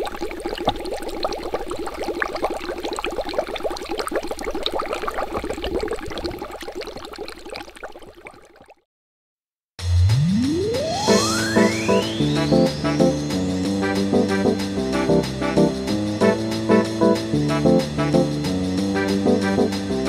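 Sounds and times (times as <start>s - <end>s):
airlock bubbling: 0.0s - 8.8s.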